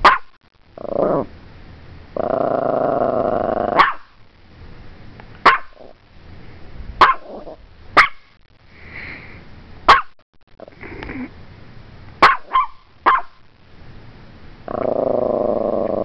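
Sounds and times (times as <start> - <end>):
small dog barking sharply: 0.0 - 0.3, 3.8 - 4.2, 5.4 - 5.9, 7.0 - 7.3, 8.0 - 8.3, 9.9 - 10.2, 12.2 - 13.4
small dog growling: 0.8 - 1.3, 2.1 - 3.9, 7.2 - 7.6, 10.6 - 11.3, 14.6 - 16.0.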